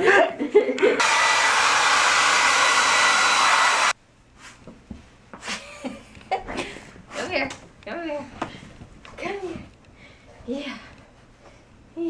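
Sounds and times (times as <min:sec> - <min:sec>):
hair dryer blowing: 0:01.0 - 0:04.0.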